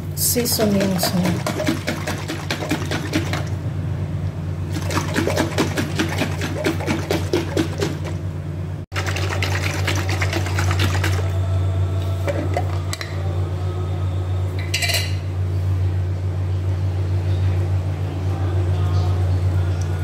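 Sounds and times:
steady low hum: 0:00.0 - 0:20.0
liquid sloshing in shaken glass jar: 0:00.7 - 0:03.5, 0:04.7 - 0:08.2, 0:09.0 - 0:11.2
dressing pouring: 0:08.9 - 0:11.2.

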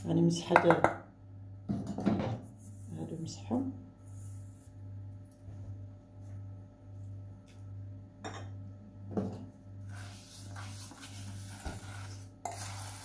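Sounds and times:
pot rubbing on stove: 0:02.4 - 0:03.4, 0:09.8 - 0:13.0.

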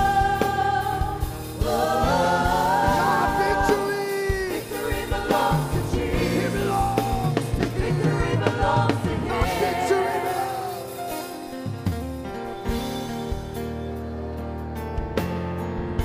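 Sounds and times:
group singing gospel song: 0:00.0 - 0:11.4
live band playing: 0:00.0 - 0:16.0.

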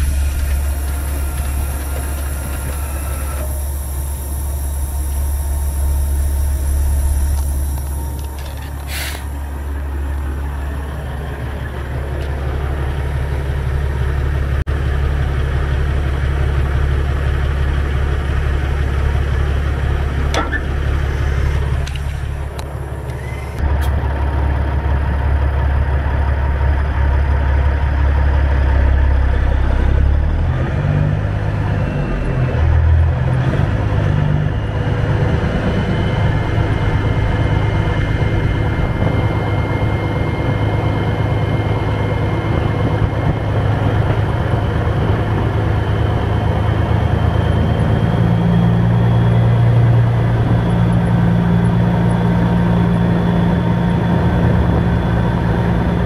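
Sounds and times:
truck diesel engine running: 0:00.0 - 0:56.0.

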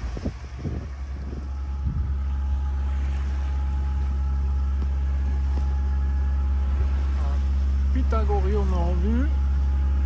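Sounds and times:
diesel engine humming: 0:00.0 - 0:10.0.

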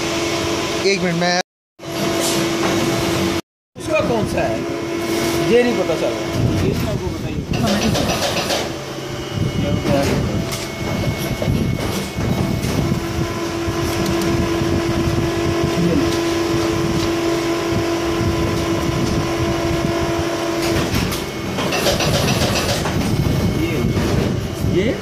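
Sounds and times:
loud machinery noise: 0:00.0 - 0:25.0
steady hum: 0:03.0 - 0:25.0.

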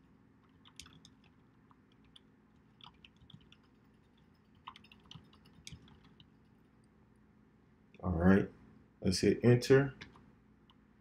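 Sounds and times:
computer keyboard typing: 0:00.4 - 0:06.6.

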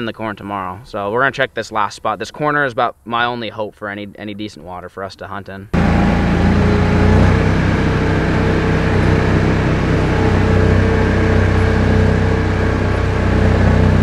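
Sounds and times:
atv engine running: 0:05.8 - 0:14.0.

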